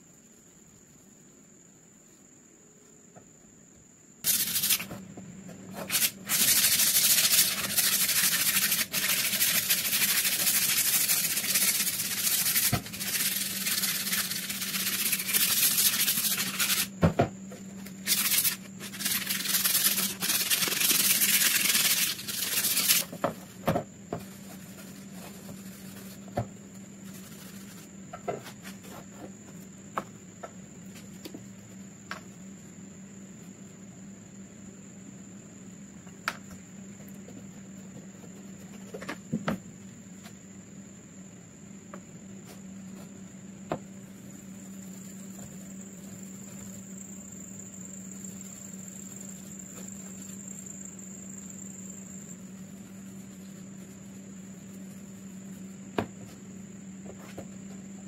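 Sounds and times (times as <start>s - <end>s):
sanding wood: 4.3s - 4.9s, 5.8s - 16.9s, 18.0s - 23.1s, 24.2s - 26.3s, 27.0s - 27.9s.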